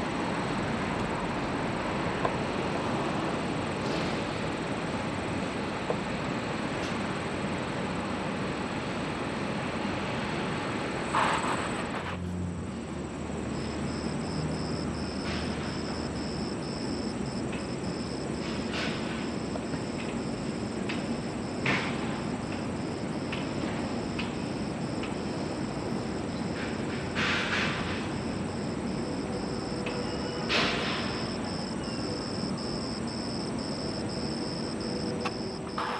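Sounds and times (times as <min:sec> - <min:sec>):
insect chirping: 0:12.6 - 0:35.9.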